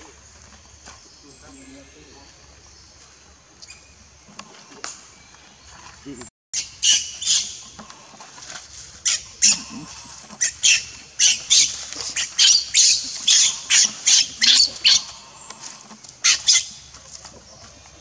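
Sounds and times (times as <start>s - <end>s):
baby monkey screaming shrieks: 6.6s - 7.6s, 10.4s - 15.1s.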